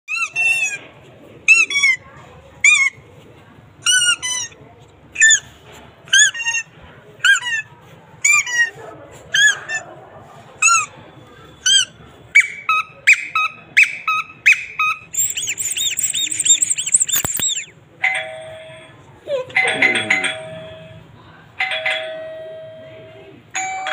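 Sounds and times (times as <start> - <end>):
squeaky chirps: 10.6 - 17.8
shrill warbling sound: 15.1 - 17.7.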